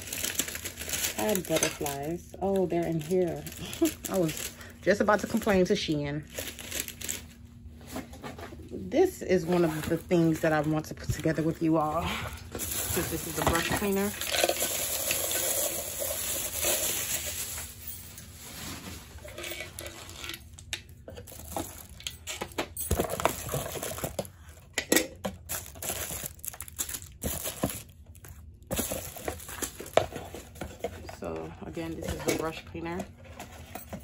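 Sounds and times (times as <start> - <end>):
plastic wrapping crinkling: 0.0 - 7.4, 9.3 - 22.3, 25.4 - 31.2.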